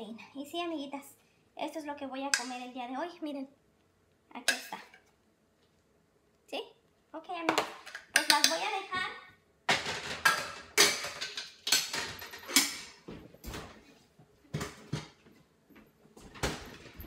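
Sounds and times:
kitchenware knocking and clinking: 9.7s - 13.6s.

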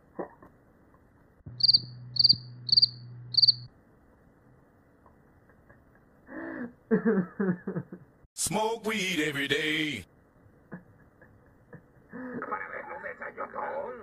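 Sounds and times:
low steady hum: 0.0s - 14.0s
cricket chirping: 1.5s - 3.7s.

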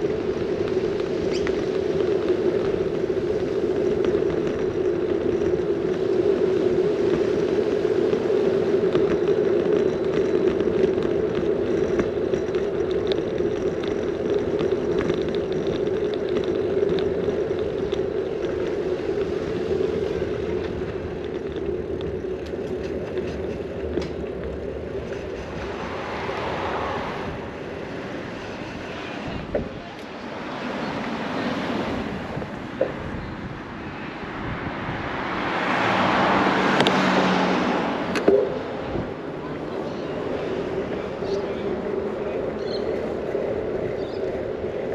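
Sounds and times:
bicycle tyre rumble on road: 0.0s - 44.9s
car approaching: 0.0s - 44.9s
wind: 0.0s - 44.9s.

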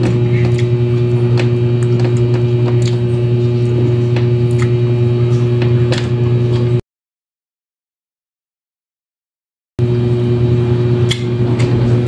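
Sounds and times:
electrical mains hum: 0.0s - 6.8s, 9.8s - 12.0s.

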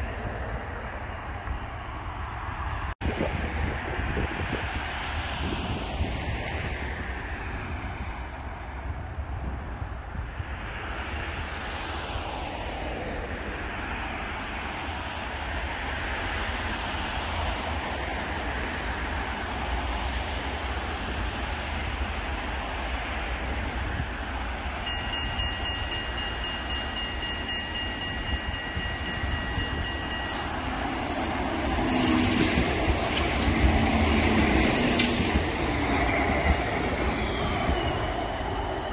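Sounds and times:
trams rumbling on rails: 0.0s - 38.9s
high steady squeal: 24.8s - 38.9s.

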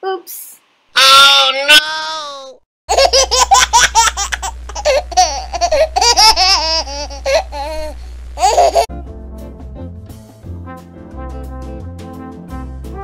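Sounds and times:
high-pitched laughter: 2.9s - 8.9s
brass music: 8.9s - 13.0s.

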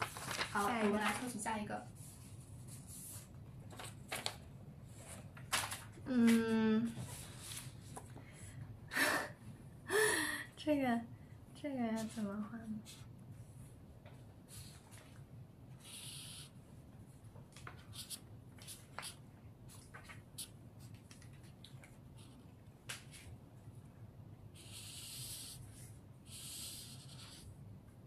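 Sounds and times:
marker scratching on paper: 15.8s - 16.6s, 17.9s - 19.2s, 24.5s - 27.5s.

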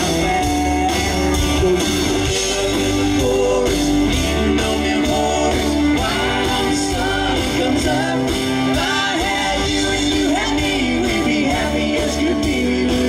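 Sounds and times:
bass guitar: 0.0s - 13.0s
drum kit beat: 0.0s - 13.0s
electric guitar: 0.0s - 13.0s.

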